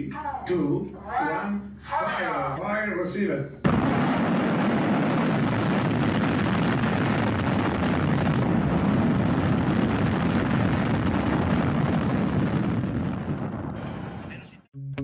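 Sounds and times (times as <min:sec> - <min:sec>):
rocket roar with hiss: 0:03.7 - 0:14.4.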